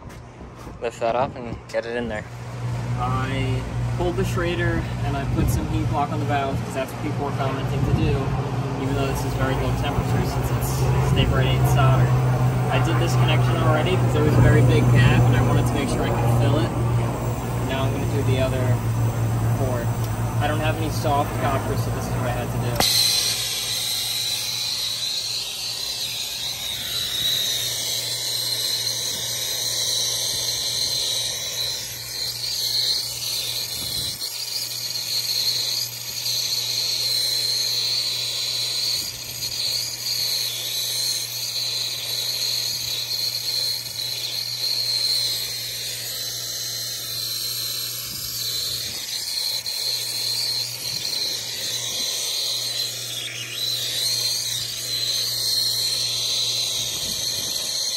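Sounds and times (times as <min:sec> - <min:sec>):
low hum: 0:02.2 - 0:34.2
torch flame hissing: 0:02.4 - 0:57.9.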